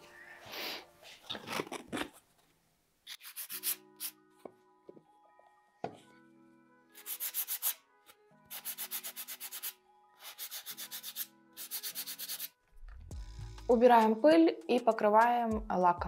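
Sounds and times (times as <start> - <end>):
sandpaper rubbing on wood: 3.1 - 4.1, 7.0 - 7.8, 8.5 - 12.5.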